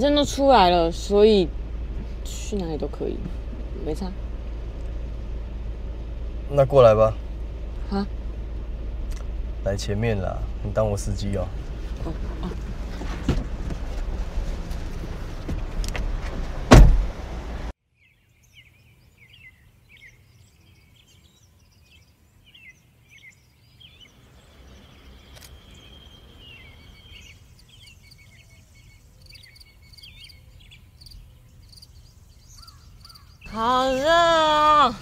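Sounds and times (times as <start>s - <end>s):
car cabin rumble: 0.0s - 17.7s
heavy thump: 12.6s - 14.2s, 15.4s - 17.2s
small birds chirping: 17.9s - 35.0s.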